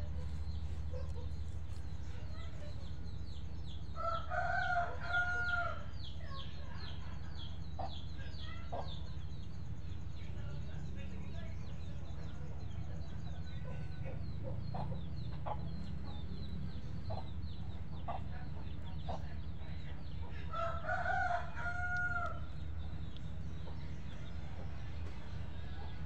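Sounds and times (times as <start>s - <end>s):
steady low hum: 0.0s - 26.0s
rooster crowing: 4.0s - 5.9s, 20.5s - 22.5s.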